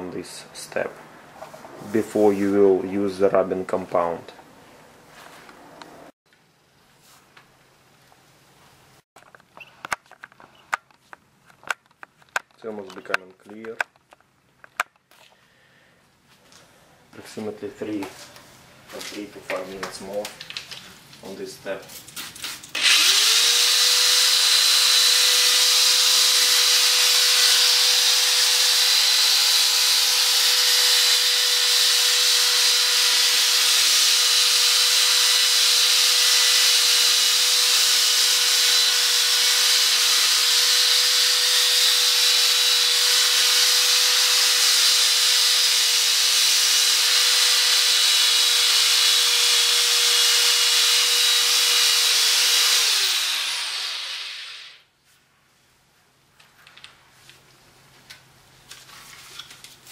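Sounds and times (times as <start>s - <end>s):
drill whining: 22.7s - 54.8s.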